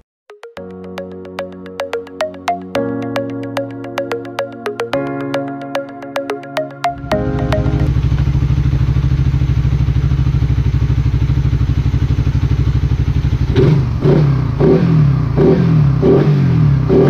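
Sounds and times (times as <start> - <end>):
motorcycle engine idling and revving: 7.9 - 17.0.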